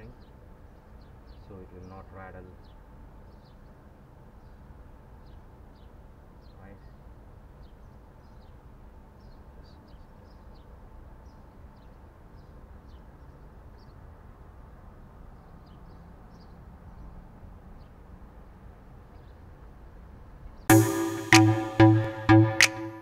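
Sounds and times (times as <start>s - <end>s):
small birds chirping: 0.0s - 14.2s, 15.3s - 18.1s.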